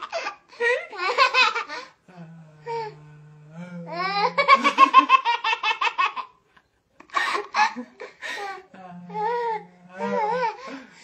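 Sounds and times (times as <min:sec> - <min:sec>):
baby and woman laughing: 0:00.0 - 0:01.8, 0:04.2 - 0:06.3.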